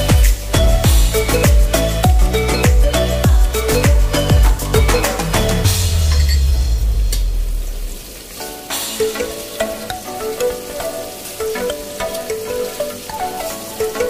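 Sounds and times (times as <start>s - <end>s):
light background music: 0.0s - 6.9s, 8.4s - 14.0s
low musical beat: 0.0s - 7.6s
garlic sizzling in butter: 5.9s - 14.0s.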